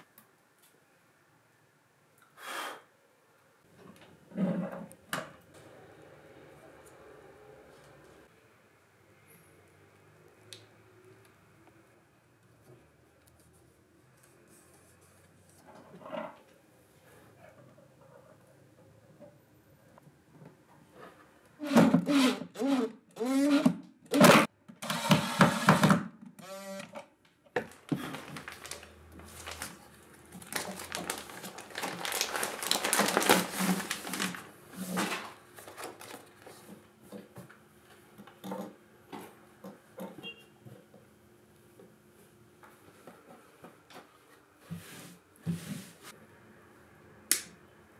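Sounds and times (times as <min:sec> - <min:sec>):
plastic bag crinkling: 0:27.6 - 0:36.5.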